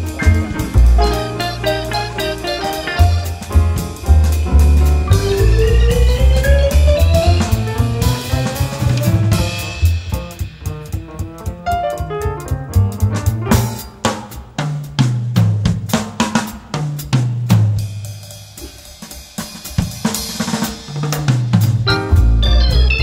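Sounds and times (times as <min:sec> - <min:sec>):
melody notes: 0:00.0 - 0:09.6, 0:21.9 - 0:23.0
bass line: 0:00.0 - 0:13.9, 0:21.7 - 0:23.0
drum kit beat: 0:00.0 - 0:23.0.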